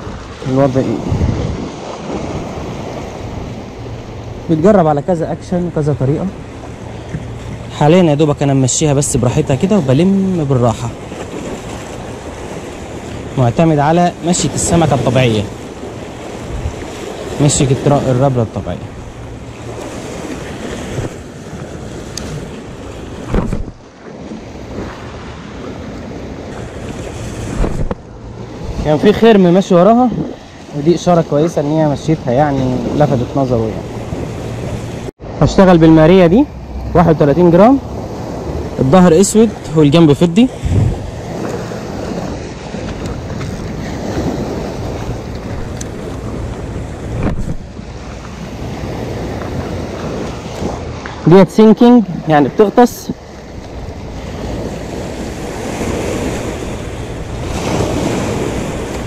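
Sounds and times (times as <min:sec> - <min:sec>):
wind buffeting microphone: 0:00.0 - 0:35.1, 0:36.4 - 0:59.0
surf washing over rocks: 0:00.0 - 0:59.0
brief thump: 0:23.3 - 0:23.8, 0:27.6 - 0:28.0, 0:47.2 - 0:47.6.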